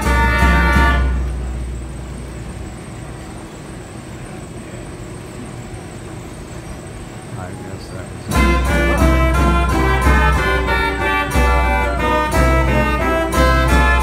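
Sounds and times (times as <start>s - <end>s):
music: 0.0s - 2.5s, 8.3s - 14.0s
tram rumbling: 0.0s - 14.0s.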